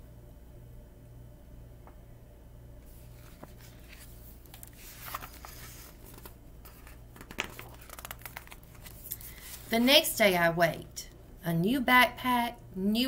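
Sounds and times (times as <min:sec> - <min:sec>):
book pages rustling: 0:02.9 - 0:10.1.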